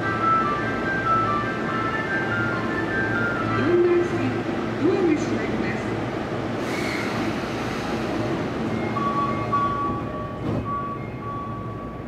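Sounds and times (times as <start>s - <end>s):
subway train rumble: 0.0s - 12.0s.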